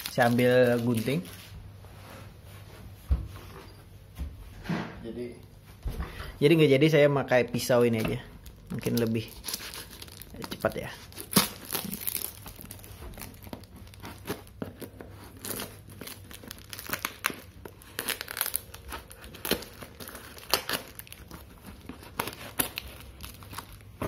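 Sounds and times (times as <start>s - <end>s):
paper crinkling and tearing: 0.0s - 1.5s, 8.4s - 24.0s
knife cutting packing tape: 11.2s - 12.4s, 13.4s - 23.6s.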